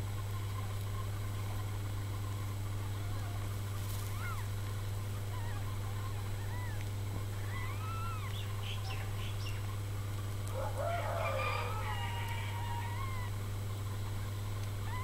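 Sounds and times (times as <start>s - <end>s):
steady low hum: 0.0s - 15.0s
kittens mewing: 4.0s - 4.5s, 5.4s - 9.1s.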